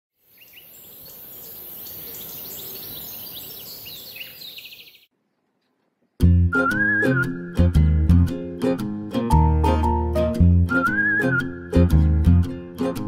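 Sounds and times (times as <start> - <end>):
birds chirping and twittering: 0.2 - 5.1
music with whistled melody: 6.2 - 8.2, 9.3 - 12.5.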